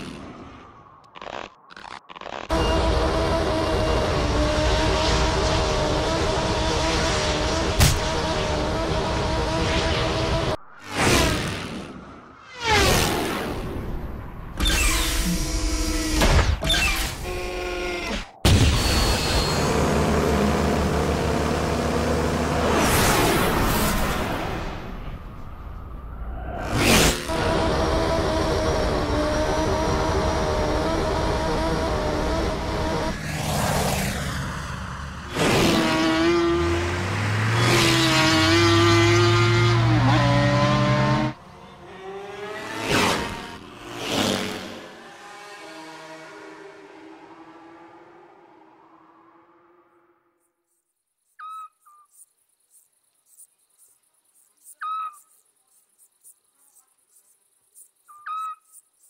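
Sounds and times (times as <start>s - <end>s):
engine-like cartoon drone: 2.5s - 16.2s, 16.9s - 50.2s
insects chirping: 50.5s - 59.0s
short whistled call: 51.4s - 52.1s.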